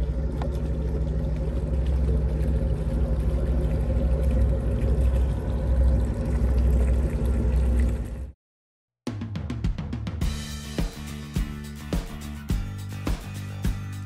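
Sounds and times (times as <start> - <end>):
low engine rumble: 0.0 - 8.4.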